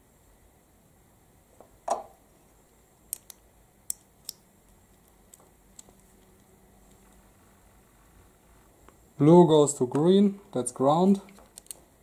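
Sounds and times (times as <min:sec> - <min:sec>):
sharp plastic clicks: 0:03.1 - 0:04.4, 0:11.2 - 0:11.8.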